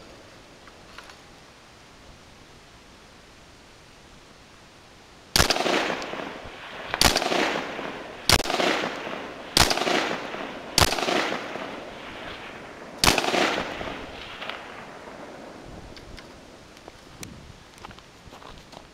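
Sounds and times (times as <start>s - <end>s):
gunshot echo: 5.4s - 15.3s
rifle shots: 5.4s - 15.6s.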